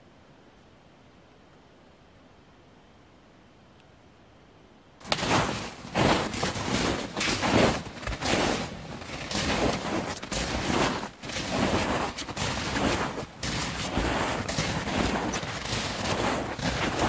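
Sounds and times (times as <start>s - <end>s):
footsteps through snow and brush: 5.0s - 17.0s.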